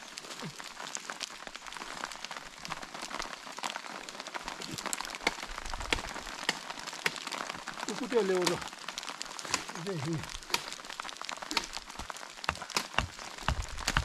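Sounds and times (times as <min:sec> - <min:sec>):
rain pattering on a tarp: 0:00.0 - 0:14.0
dry twigs snapping: 0:04.5 - 0:14.0.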